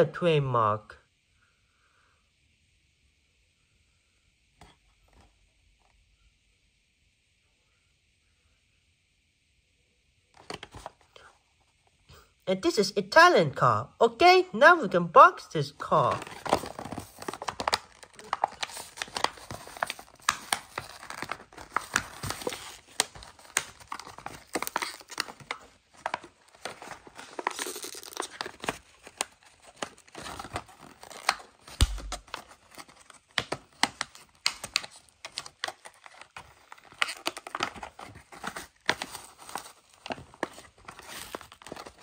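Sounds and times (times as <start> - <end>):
plastic crinkling: 16.1 - 42.0
cardboard tearing: 16.2 - 42.0.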